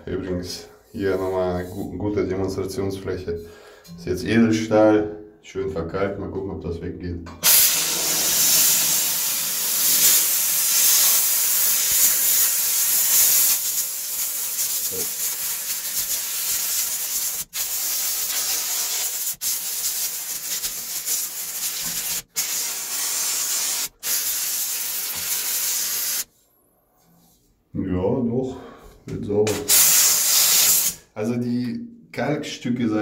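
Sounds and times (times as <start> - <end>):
steam cleaner hissing: 7.4 - 26.3, 29.5 - 31.1.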